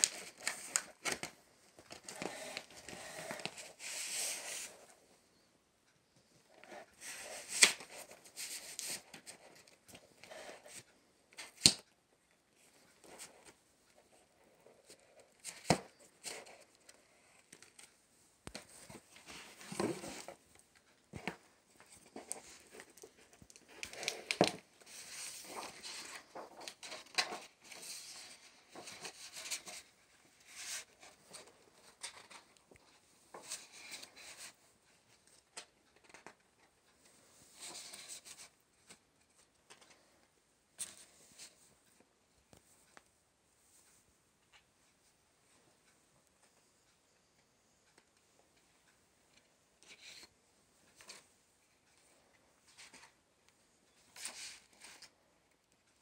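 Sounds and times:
paper and cardboard rustling: 0.0s - 4.9s, 6.6s - 11.7s, 12.7s - 34.6s, 54.0s - 55.1s.

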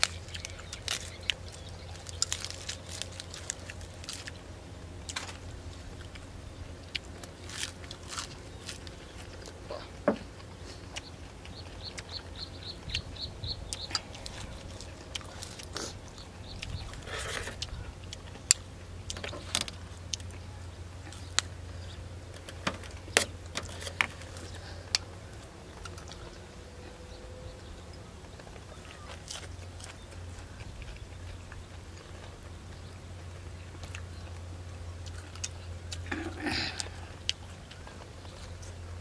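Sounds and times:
stems snapping: 0.0s - 4.4s
chewing and crunching food: 0.0s - 39.0s
steady low hum: 0.0s - 39.0s.

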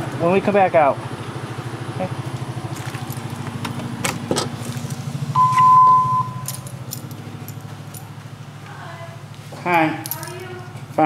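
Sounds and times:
low engine-like hum: 0.0s - 11.0s
electronic entry beep: 5.4s - 6.5s.

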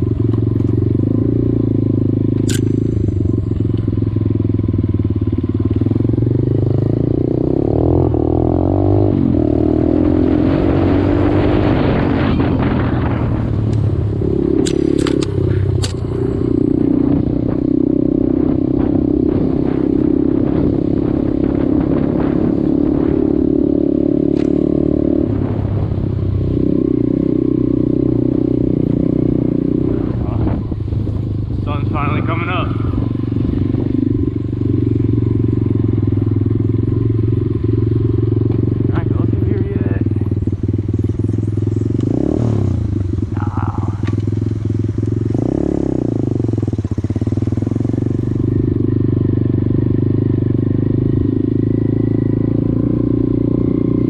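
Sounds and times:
sharp clicks: 2.4s - 2.8s, 14.6s - 16.1s, 24.3s - 24.6s
dirt bike engine revving: 5.4s - 25.8s, 26.5s - 54.0s.

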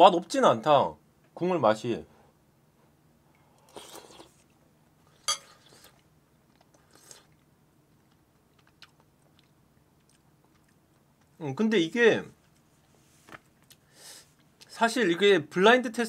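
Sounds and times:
faint chewing: 3.3s - 11.4s, 12.5s - 14.8s
person slurping soup: 3.5s - 4.4s, 5.1s - 6.0s, 6.8s - 7.4s.

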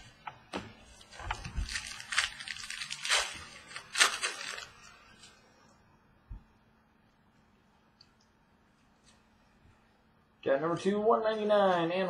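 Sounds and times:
cards and packaging rustling: 0.9s - 5.3s.

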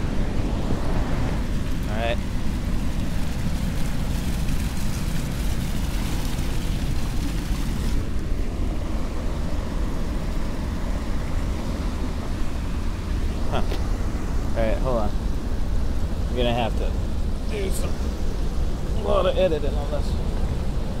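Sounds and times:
wind rumble on microphone: 0.0s - 13.6s
waves on rocky shore: 0.0s - 21.0s.

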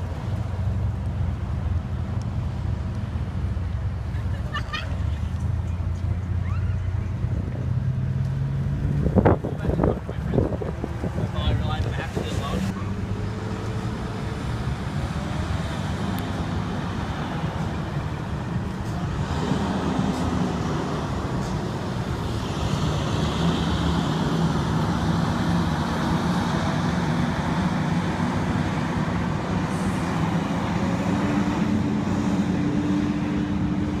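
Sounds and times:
bus engines running: 0.0s - 34.0s
road traffic noise: 0.0s - 34.0s.

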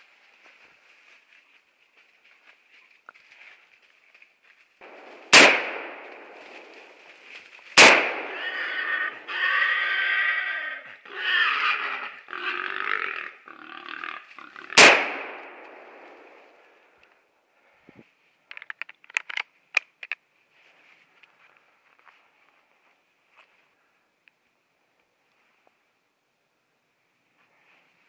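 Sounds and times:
shotgun gunshots: 4.8s - 7.0s, 7.8s - 8.6s, 14.8s - 16.1s
drawn-out animal cry: 8.2s - 14.8s.

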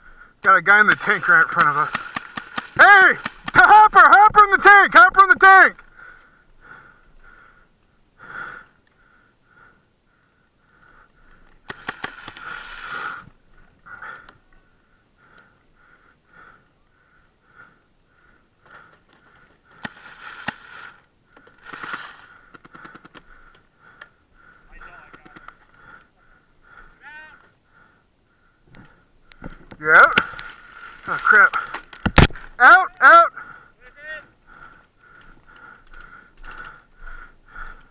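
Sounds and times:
paintball markers popping: 0.9s - 3.7s, 11.6s - 12.8s, 19.8s - 23.4s.

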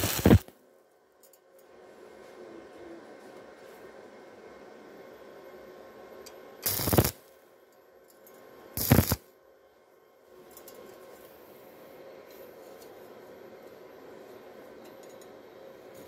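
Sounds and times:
welding arc crackle: 0.0s - 0.5s, 6.6s - 7.2s, 8.8s - 9.2s.

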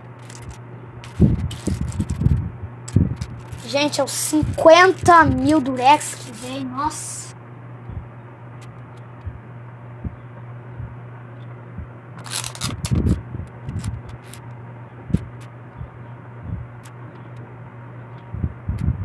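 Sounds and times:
steady low hum: 0.0s - 19.0s
tape pulled and torn: 0.2s - 3.7s, 12.2s - 14.4s.

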